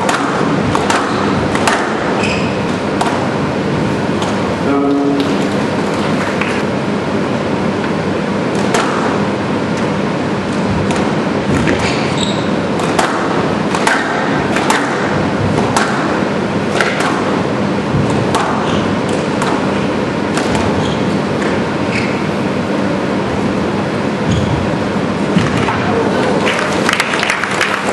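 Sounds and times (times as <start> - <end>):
squash ball cracking off rackets: 0.0 - 2.2, 10.5 - 19.7
steady hum: 0.0 - 27.9.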